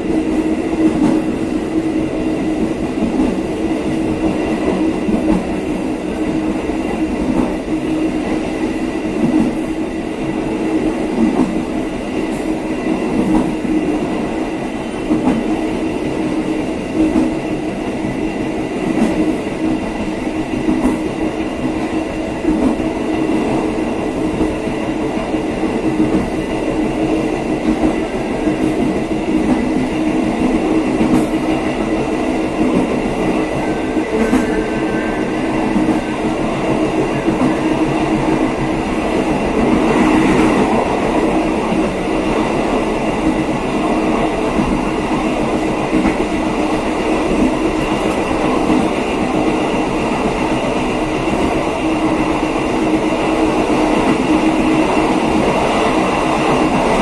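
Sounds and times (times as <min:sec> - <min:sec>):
train rolling rumble: 0:00.0 - 0:57.0.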